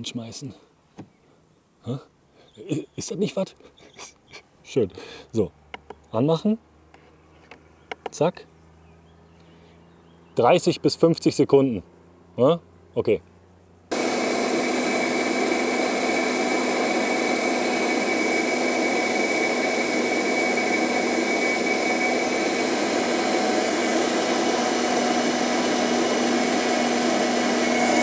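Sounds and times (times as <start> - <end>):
electric blender running: 13.9 - 28.0.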